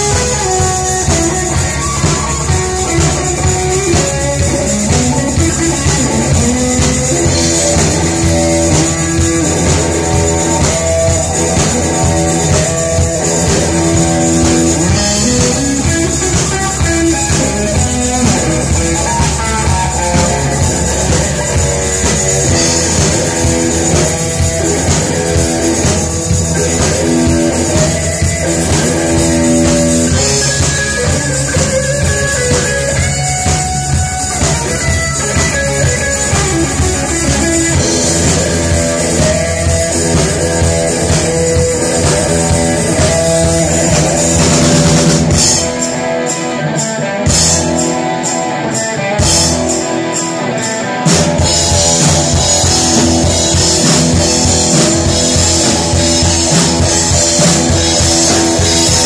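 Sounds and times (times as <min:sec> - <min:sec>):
drum kit: 0:00.0 - 0:59.0
electric guitars: 0:00.0 - 0:59.0.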